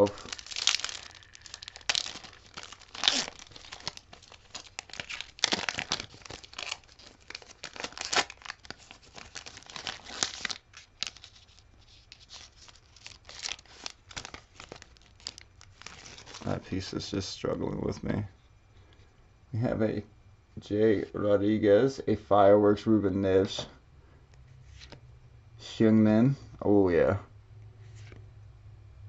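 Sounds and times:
foil wrapper tearing and crinkling: 0.0 - 16.6.

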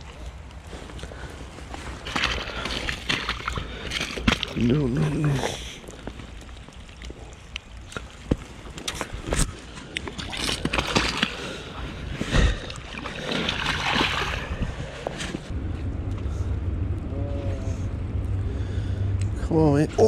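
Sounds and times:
gravel knocks and clicks: 0.0 - 16.4
water splashing: 1.9 - 15.5.

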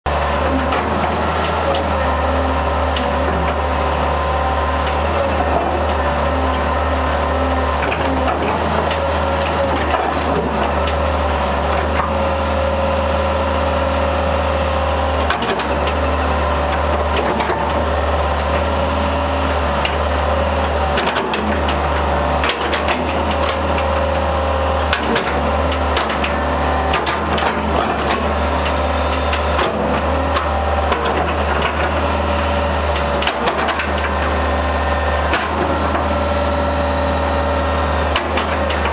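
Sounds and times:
excavator diesel engine running: 0.1 - 38.9.

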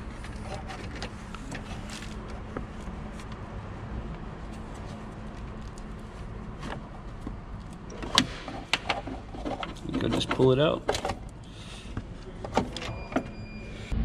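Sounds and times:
faint handling noise: 0.0 - 12.9.

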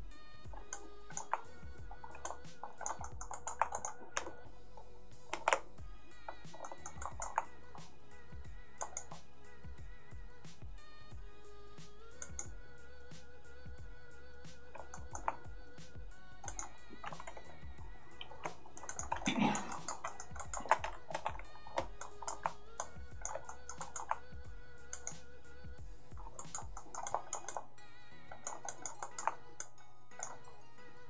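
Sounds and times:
quiet background music: 0.0 - 31.0
keyboard and mouse clicks: 0.5 - 5.7, 6.3 - 7.9, 8.8 - 9.3, 12.2 - 12.5, 14.7 - 15.5, 16.4 - 24.3, 24.9 - 25.2, 26.1 - 27.7, 28.3 - 30.5.

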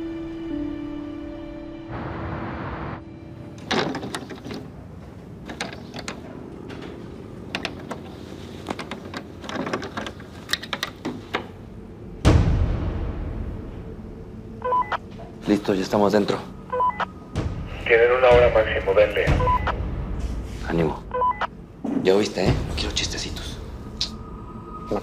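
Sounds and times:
door lock and latch rattling: 3.6 - 4.8, 5.4 - 11.5.

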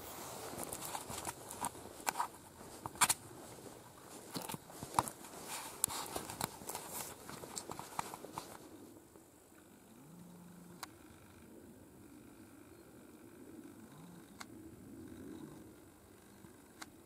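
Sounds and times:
footsteps on grass: 0.0 - 8.9.

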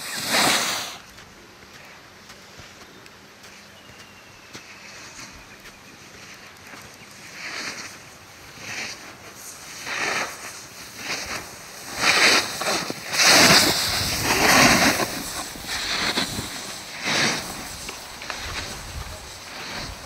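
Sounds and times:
snowboard swooshing through snow: 0.0 - 1.1, 7.1 - 20.0.

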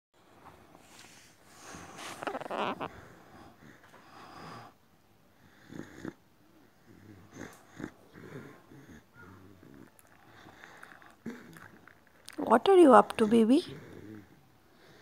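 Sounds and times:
dog breathing noisily: 0.6 - 11.8.

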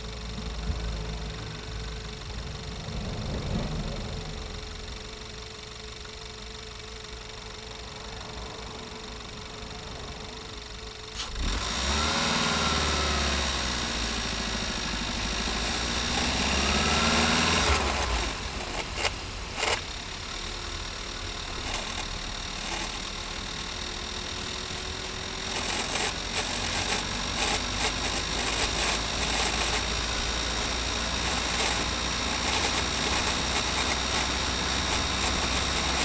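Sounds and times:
engine running: 0.0 - 36.0
gearbox whine: 0.0 - 36.0.

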